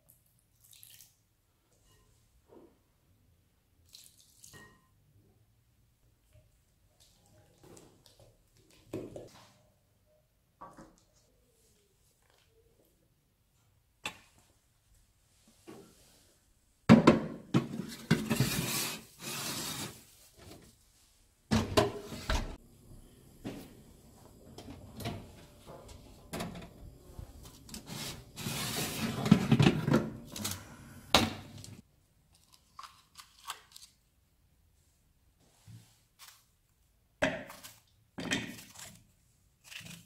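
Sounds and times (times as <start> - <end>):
metal scraping on oven rails: 27.7 - 29.9.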